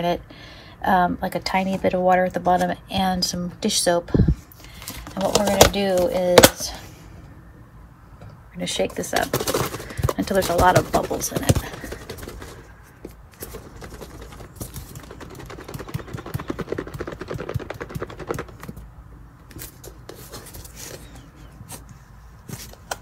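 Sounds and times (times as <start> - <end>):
plastic container rattling: 4.9 - 6.6, 8.9 - 18.9.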